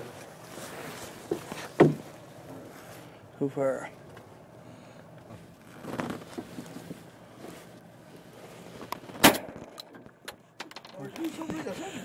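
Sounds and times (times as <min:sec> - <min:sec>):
wind: 0:00.0 - 0:12.0
shotgun shot: 0:09.2 - 0:09.9.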